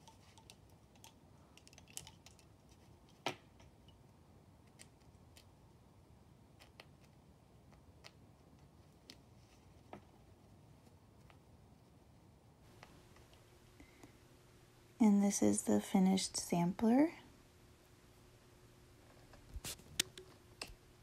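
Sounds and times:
wooden bobbins clicking: 0:00.0 - 0:03.7.

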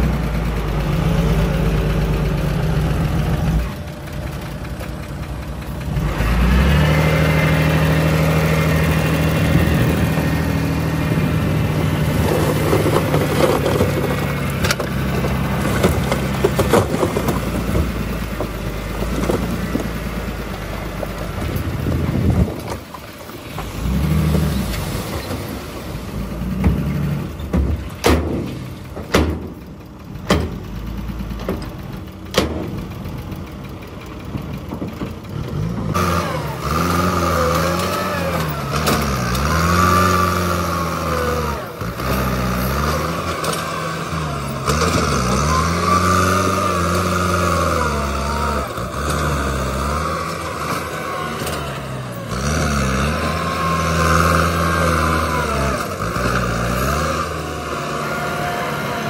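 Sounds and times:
low engine hum: 0:00.0 - 0:59.0
tractor engine working under load: 0:00.0 - 0:59.0
rocks falling from dump truck: 0:11.7 - 0:20.2, 0:20.8 - 0:30.7.

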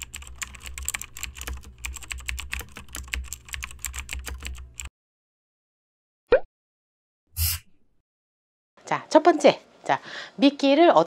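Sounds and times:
keyboard typing clicks: 0:00.0 - 0:04.9.

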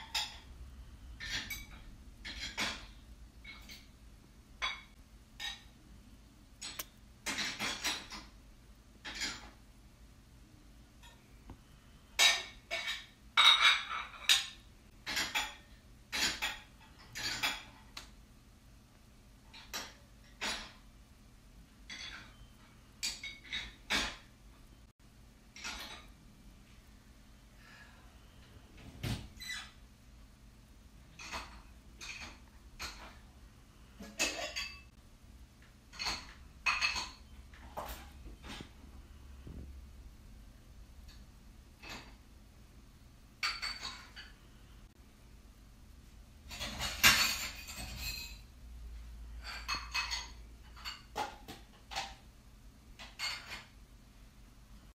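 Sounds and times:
faint low steady hum: 0:00.0 - 0:54.9
clinks and rattles: 0:01.2 - 0:03.9, 0:06.6 - 0:08.3, 0:09.0 - 0:09.6, 0:12.2 - 0:18.0, 0:19.5 - 0:20.8, 0:21.9 - 0:24.3, 0:25.5 - 0:26.2, 0:31.1 - 0:33.2, 0:34.0 - 0:35.0, 0:35.9 - 0:38.8, 0:41.8 - 0:42.2, 0:43.4 - 0:44.4, 0:46.5 - 0:48.5, 0:49.4 - 0:52.2, 0:53.0 - 0:53.8.

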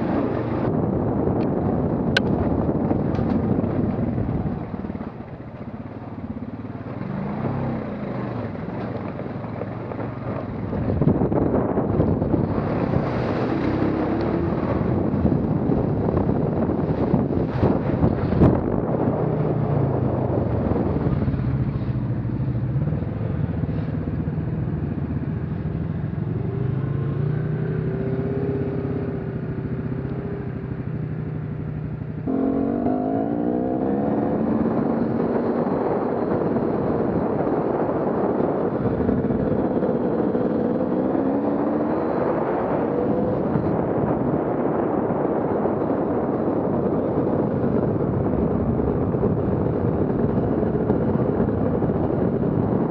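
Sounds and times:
off-road vehicle engine revving: 0:11.1 - 0:15.9, 0:32.3 - 0:36.5, 0:37.2 - 0:44.1.

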